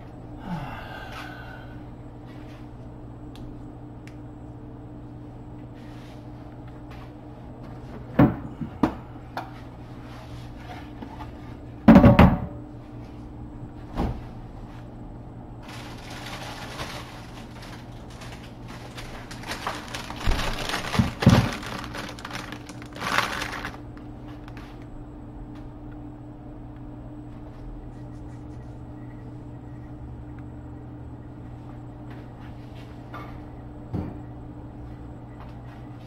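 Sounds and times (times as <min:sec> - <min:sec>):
steady low hum: 0:00.0 - 0:36.0
knocks on kitchen surfaces: 0:11.9 - 0:12.6
plastic bag rustling: 0:15.6 - 0:24.8.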